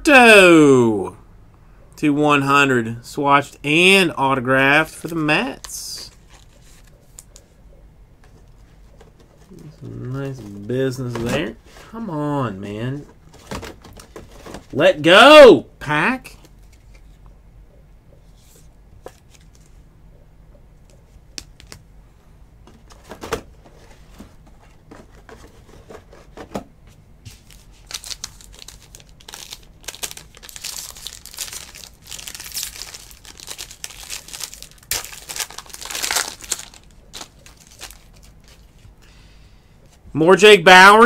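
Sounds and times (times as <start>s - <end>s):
foil wrapper crinkling: 27.6s - 38.8s.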